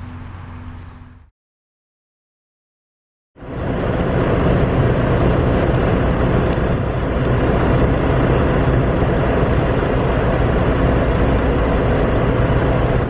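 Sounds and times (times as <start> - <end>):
thin steady hum: 3.4 - 13.0.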